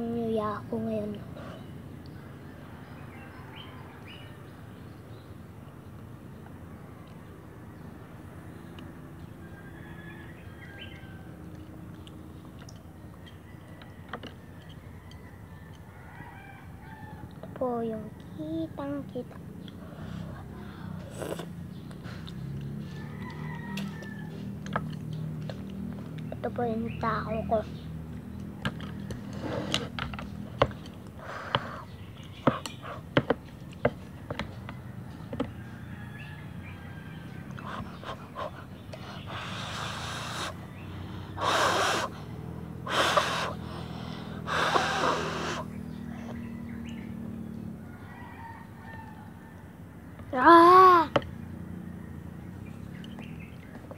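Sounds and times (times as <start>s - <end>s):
chewing: 19.3s - 26.4s.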